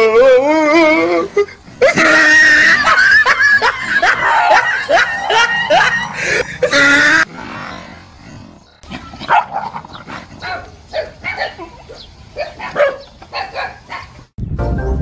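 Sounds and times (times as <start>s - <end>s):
dog barking: 9.2s - 9.8s, 10.4s - 14.2s.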